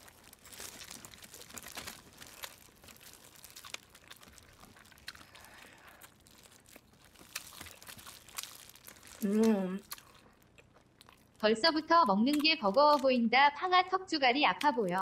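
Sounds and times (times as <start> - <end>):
biting and chewing: 0.0 - 11.4
plastic gloves crinkling: 0.0 - 11.4.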